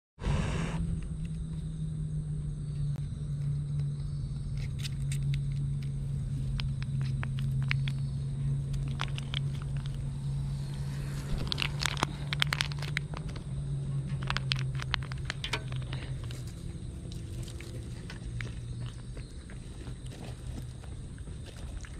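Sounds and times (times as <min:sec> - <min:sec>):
low hum: 0:00.2 - 0:21.9
food pouch squeezed and crinkled: 0:11.1 - 0:13.4.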